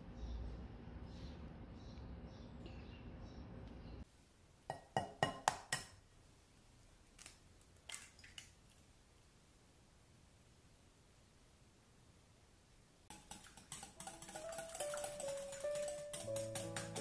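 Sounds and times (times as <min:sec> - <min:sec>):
kitchenware clinking: 0:13.1 - 0:17.0.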